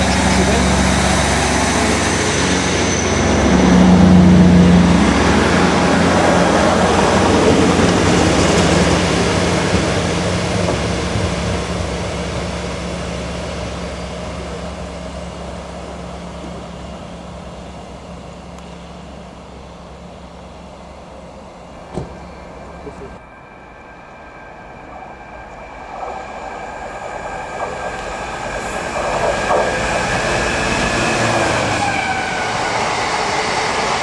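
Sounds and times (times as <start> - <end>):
diesel engine drone: 0.0 - 8.4, 11.2 - 23.2
train wheels rumbling on rails: 0.0 - 23.2, 24.8 - 34.0.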